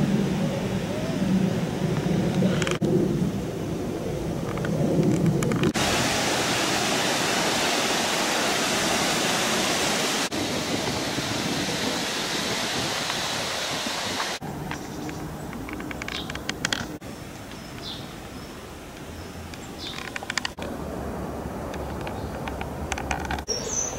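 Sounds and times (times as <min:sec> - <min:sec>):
loud steady rushing noise: 0:00.0 - 0:14.6.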